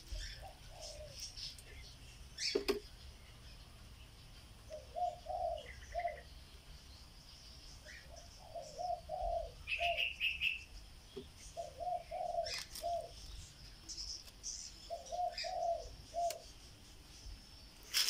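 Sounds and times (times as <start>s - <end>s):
dove cooing: 0.0s - 1.2s, 4.7s - 6.3s, 8.0s - 10.5s, 11.6s - 13.3s, 14.9s - 16.5s
small bird chirping: 0.0s - 18.0s.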